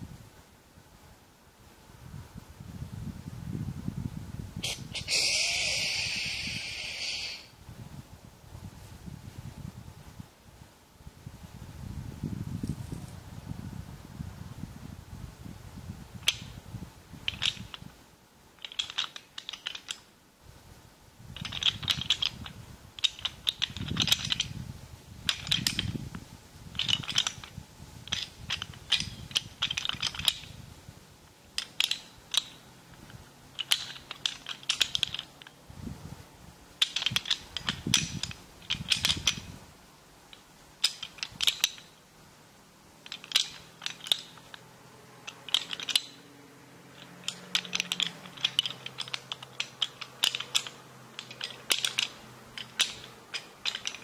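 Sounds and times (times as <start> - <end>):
clicks and rattles from handling: 17.2 - 17.9, 18.6 - 20.1, 21.4 - 24.6, 25.2 - 26.0, 26.7 - 30.6, 31.6 - 35.6, 36.8 - 39.6, 40.3 - 42.0, 43.0 - 46.3, 46.9 - 54.0.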